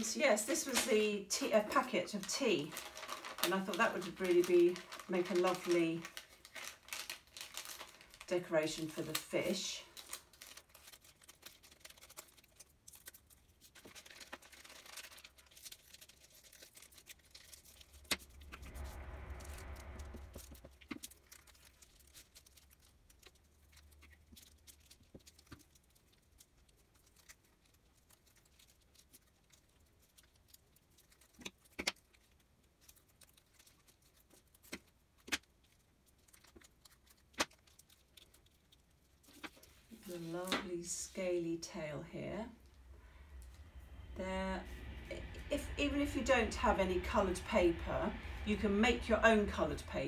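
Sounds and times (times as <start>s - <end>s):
foil packet crinkling: 0.0s - 41.1s
low rumble: 17.6s - 21.9s, 41.1s - 50.0s.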